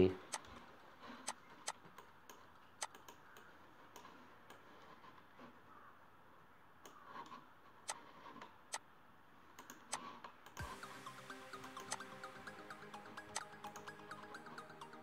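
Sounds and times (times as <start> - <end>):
computer mouse clicking: 0.3 - 5.9, 6.8 - 8.8, 9.5 - 10.7, 11.7 - 12.1, 13.3 - 14.6.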